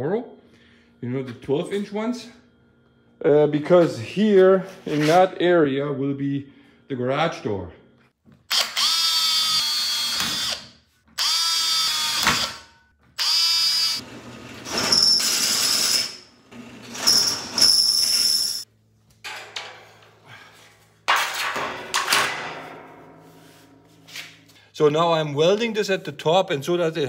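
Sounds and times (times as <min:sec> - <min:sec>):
drill press motor hum: 0:08.5 - 0:18.2
cordless drill boring steel: 0:08.5 - 0:18.6.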